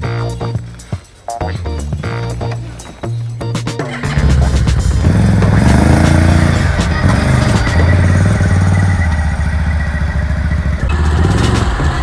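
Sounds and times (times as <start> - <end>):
quad bike engine running: 3.9 - 12.0.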